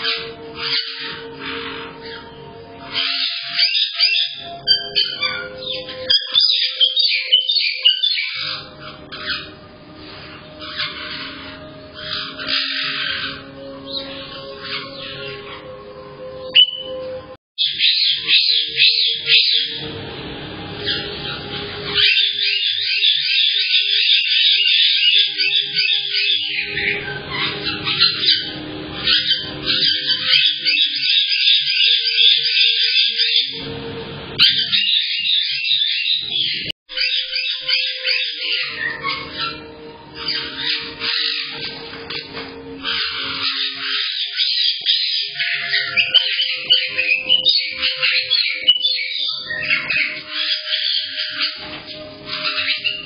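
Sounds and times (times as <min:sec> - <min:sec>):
parrots whistling and squawking: 0:00.0 - 0:53.0.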